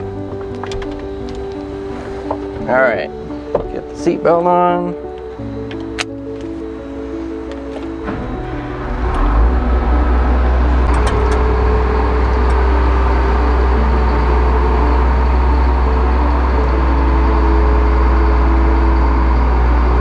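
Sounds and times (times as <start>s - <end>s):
engine starting and rumbling: 5.0s - 20.0s.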